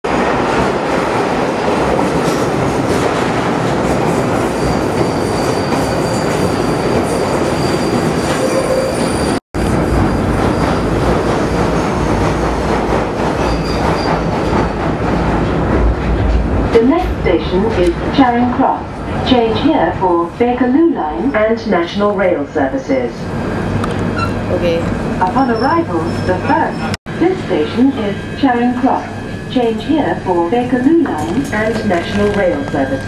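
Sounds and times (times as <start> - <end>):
train running noise: 0.1 - 33.0
low rumble inside train carriage: 9.6 - 33.0.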